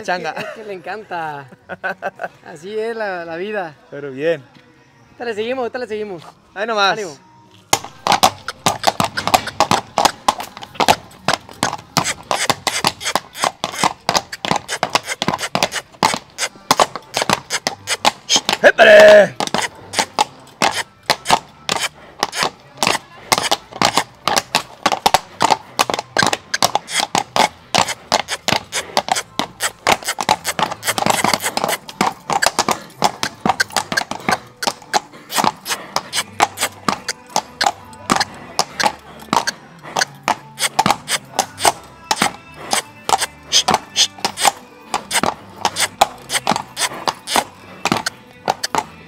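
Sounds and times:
horse hooves on hard floor: 7.6 - 48.9.

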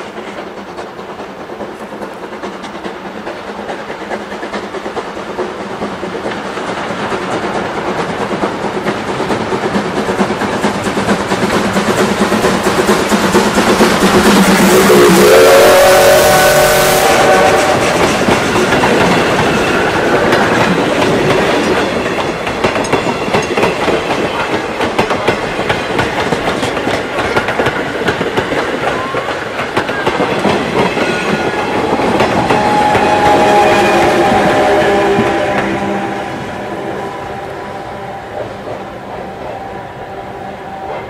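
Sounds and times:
train wheels clacking over rail joints: 0.0 - 37.3, 37.9 - 39.7
whistle-like chord: 32.0 - 38.6, 39.2 - 41.0.

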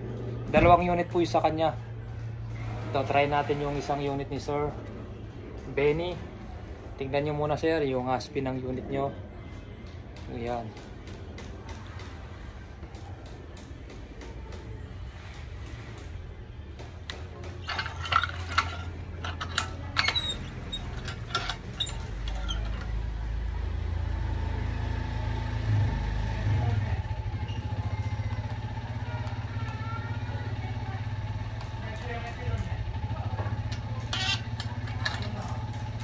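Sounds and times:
motorcycle engine idling: 17.3 - 36.0.

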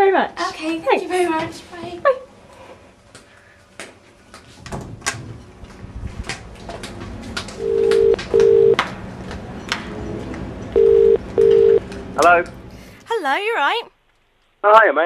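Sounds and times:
telephone ringing tone: 7.6 - 8.8, 10.8 - 11.8.

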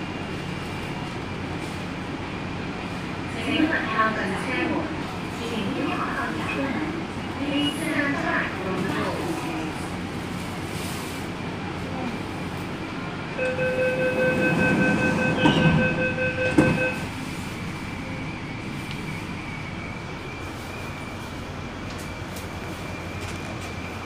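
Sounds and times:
train running hum: 0.0 - 24.0
door-closing warning beeping: 13.4 - 17.2
train doors thumping shut: 13.8 - 17.1.

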